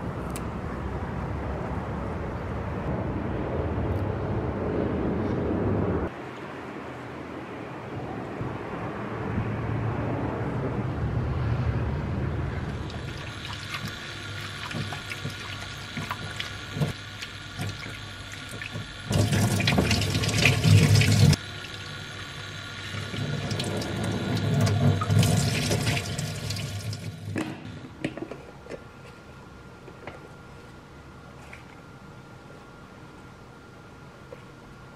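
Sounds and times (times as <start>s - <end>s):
tap water splashing: 12.8s - 21.4s.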